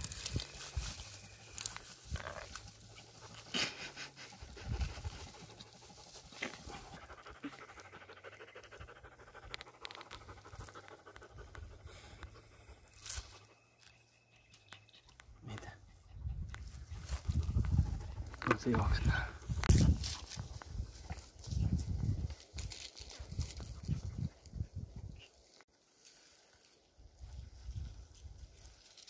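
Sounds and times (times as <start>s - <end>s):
dry grass rustling: 0.0s - 8.0s, 16.5s - 29.0s
rapid panting: 3.2s - 12.6s.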